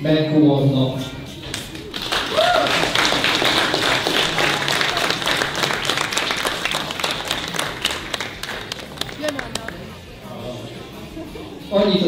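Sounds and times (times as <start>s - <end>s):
audience applauding: 1.3s - 9.8s.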